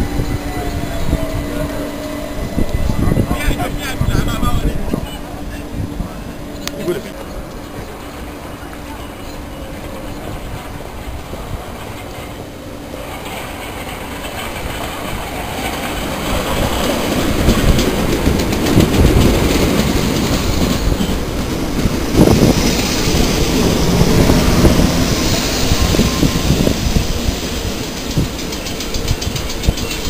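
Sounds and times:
electric train rumbling: 0:00.0 - 0:30.0
train wheels clacking over rail joints: 0:08.7 - 0:30.0.

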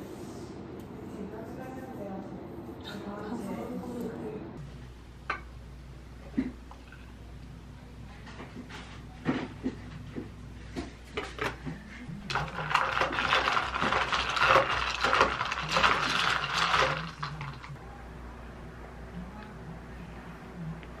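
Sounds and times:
ice cubes rattling in plastic cup: 0:12.3 - 0:17.7.

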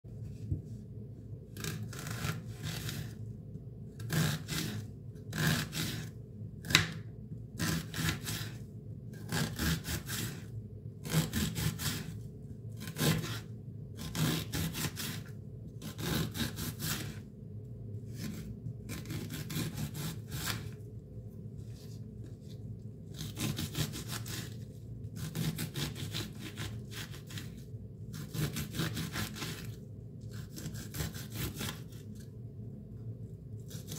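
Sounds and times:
knife cutting onion on board: 0:04.0 - 0:08.6, 0:09.2 - 0:12.1, 0:12.8 - 0:17.2, 0:18.1 - 0:20.8, 0:23.1 - 0:24.6, 0:25.2 - 0:29.7, 0:30.3 - 0:32.0, 0:33.7 - 0:33.9.

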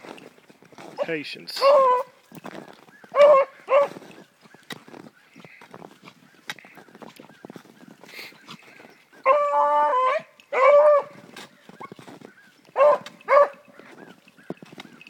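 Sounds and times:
hound baying: 0:00.9 - 0:02.2, 0:03.0 - 0:04.1, 0:09.2 - 0:12.0, 0:12.7 - 0:15.0.

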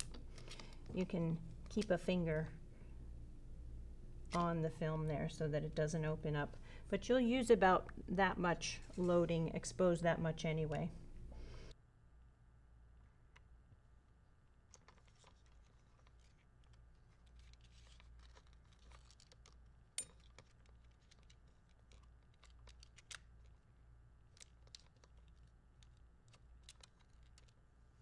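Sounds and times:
fingers rubbing film and metal: 0:14.7 - 0:23.6.

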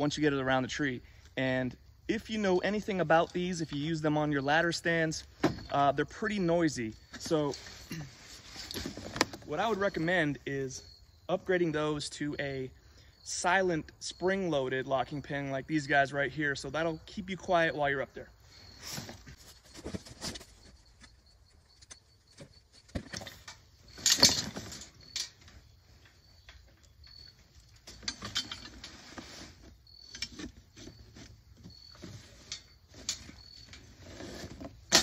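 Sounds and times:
cardboard rustling: 0:18.8 - 0:23.5
metal frame clanking: 0:23.0 - 0:29.0.

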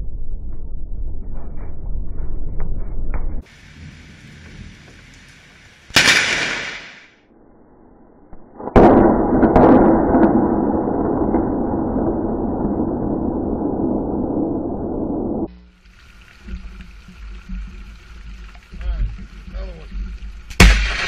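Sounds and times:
thunder crack and rumble: 0:08.6 - 0:15.5.

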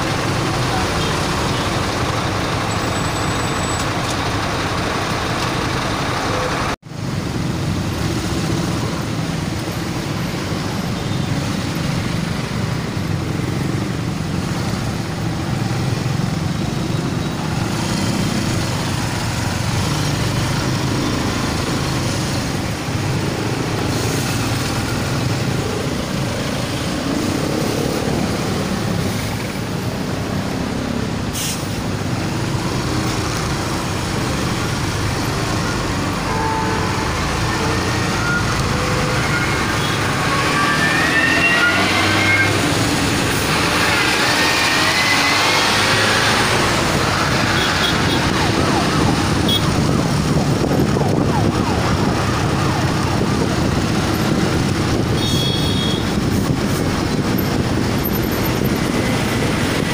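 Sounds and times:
city traffic: 0:00.0 - 0:59.9
rushing air: 0:21.3 - 0:34.2.

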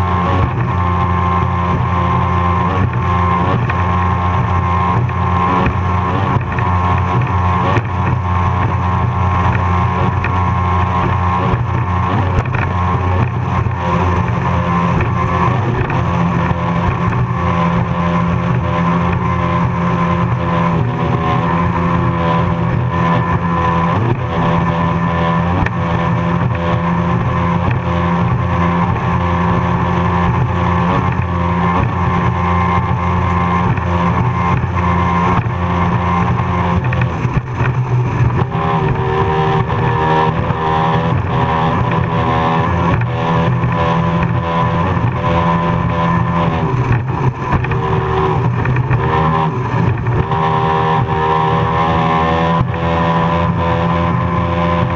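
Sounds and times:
powerboat engines running hard: 0:00.0 - 0:54.9.

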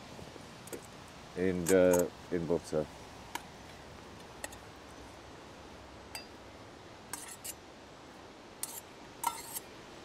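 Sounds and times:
metal camping pans clinking: 0:01.5 - 0:02.2, 0:04.4 - 0:04.7, 0:06.1 - 0:06.4, 0:07.1 - 0:07.6, 0:08.6 - 0:09.7.

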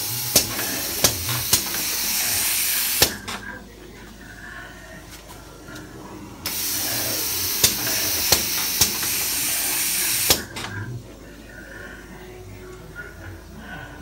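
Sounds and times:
pressurised air jet hissing: 0:00.0 - 0:03.4, 0:06.5 - 0:10.7.

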